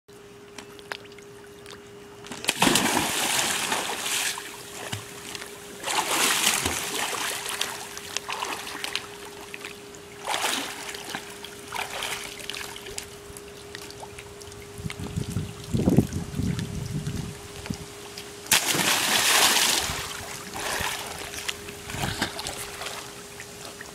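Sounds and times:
child jumping into pool splash: 0:02.4 - 0:05.1, 0:05.8 - 0:07.8, 0:18.5 - 0:23.1
splashing from swimming: 0:02.4 - 0:09.1, 0:10.2 - 0:13.0, 0:18.5 - 0:23.8.

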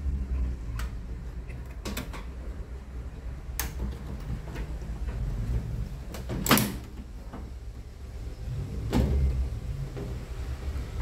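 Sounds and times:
low steady rumble: 0:00.0 - 0:11.0
hands handling wiring clicks: 0:03.6 - 0:04.7.

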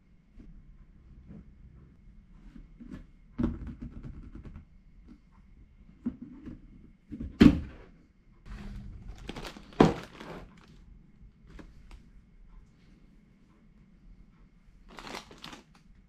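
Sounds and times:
cardboard rustling: 0:09.0 - 0:10.8, 0:14.9 - 0:15.7.

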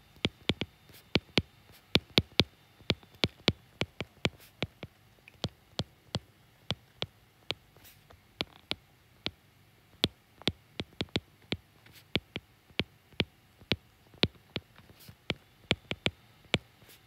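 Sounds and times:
stylus tapping on glass screen: 0:00.2 - 0:05.9, 0:10.0 - 0:11.6, 0:15.3 - 0:16.7.

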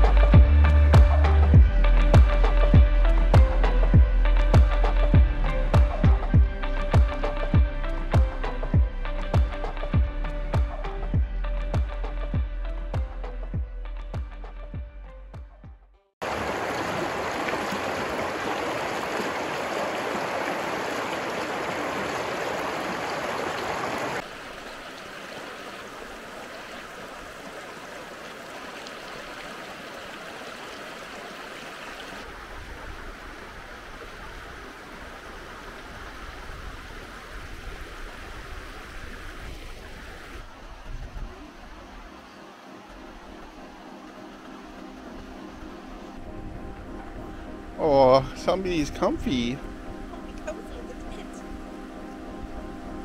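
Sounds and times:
creek running over rocks: 0:16.2 - 0:47.0, 0:47.8 - 0:51.4.

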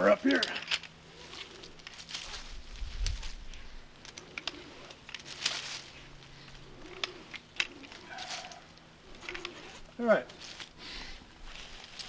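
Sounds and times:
rope rustling: 0:00.0 - 0:12.0
belay device clicking: 0:03.0 - 0:09.7.

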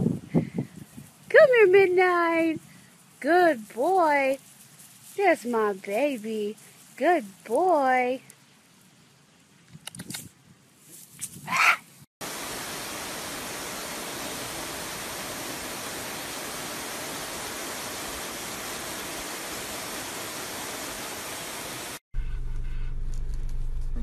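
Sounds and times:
garden hose spraying water: 0:00.7 - 0:08.8, 0:12.2 - 0:22.0.

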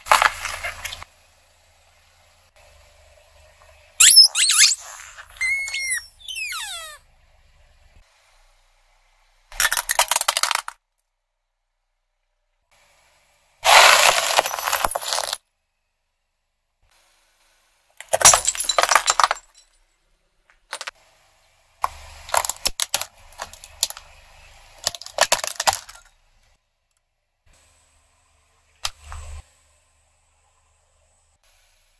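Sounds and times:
plastic and ceramic cracking: 0:21.8 - 0:24.1, 0:24.8 - 0:26.1.

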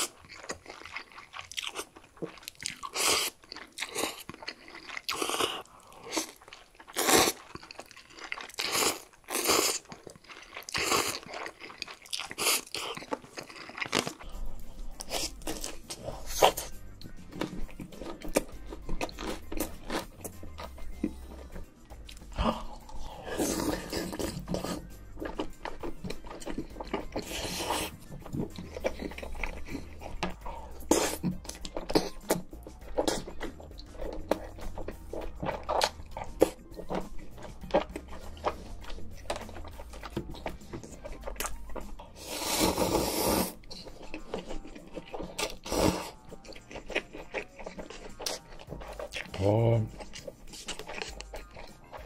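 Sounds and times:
crunchy bites and chewing: 0:00.0 - 0:52.0
soft chewing and mouth sounds: 0:00.0 - 0:52.0
background music with bass line: 0:14.3 - 0:44.4, 0:48.1 - 0:52.0.

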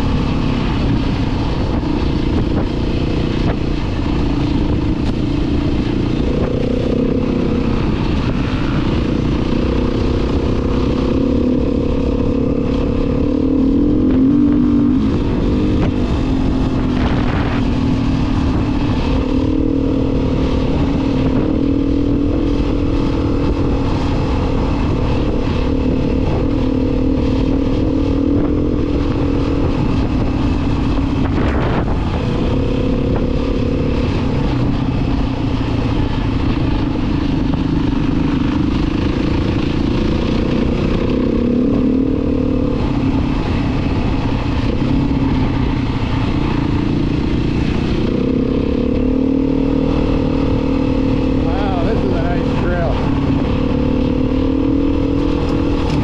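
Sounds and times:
vehicle engine running: 0:00.0 - 0:56.0
wind and road noise: 0:00.0 - 0:56.0.

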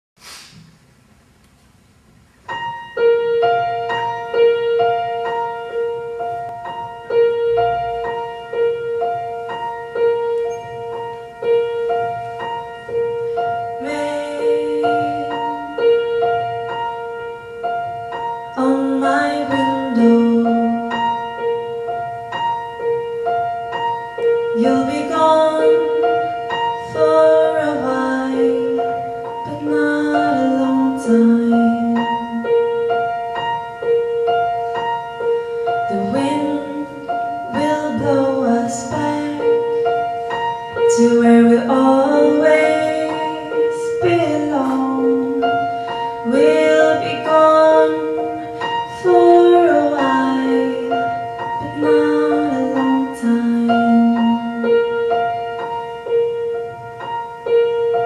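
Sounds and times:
piano playing repeating notes: 0:02.2 - 0:58.0
woman singing: 0:13.7 - 0:16.6, 0:18.5 - 0:21.5, 0:24.3 - 0:32.9, 0:35.8 - 0:40.1, 0:40.8 - 0:55.0.

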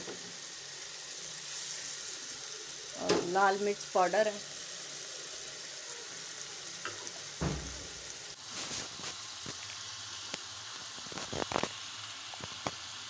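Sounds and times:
chicken sizzling in a pan: 0:00.0 - 0:13.0
soft thump: 0:07.4 - 0:07.9.

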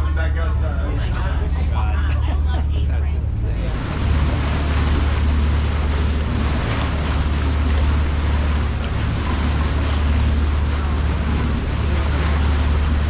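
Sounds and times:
boat engine droning: 0:00.0 - 0:13.0
water rushing along hull: 0:00.0 - 0:13.0
wind on microphone: 0:03.6 - 0:13.0.

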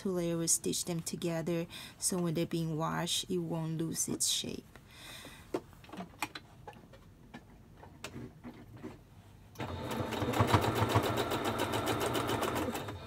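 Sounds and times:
electric sewing machine stitching: 0:09.6 - 0:13.0.

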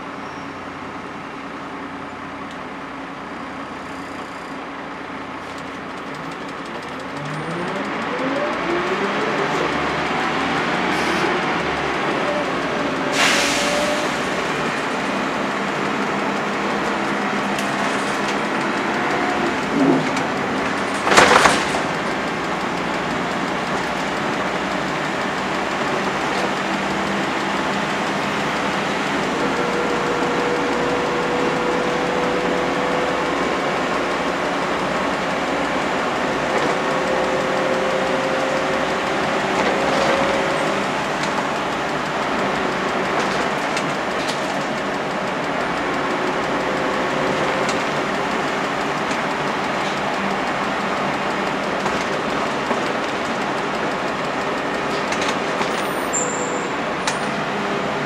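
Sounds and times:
bus diesel engine running: 0:00.0 - 0:58.0
loud rattle: 0:05.5 - 0:29.4.

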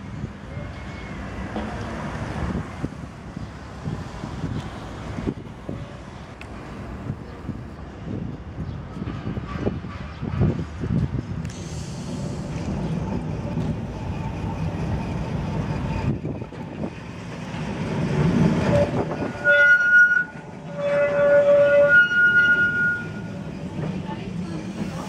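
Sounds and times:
tram rumbling on rails: 0:00.0 - 0:25.0
tram wheels squealing: 0:00.1 - 0:01.8, 0:11.5 - 0:25.0.

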